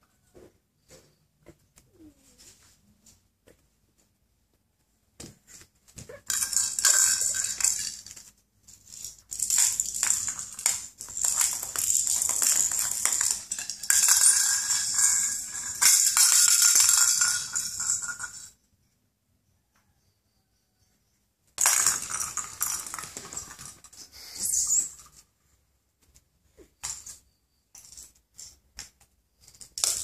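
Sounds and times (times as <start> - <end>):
toy rattle shaking: 6.2 - 18.6, 21.6 - 25.1, 29.5 - 30.0.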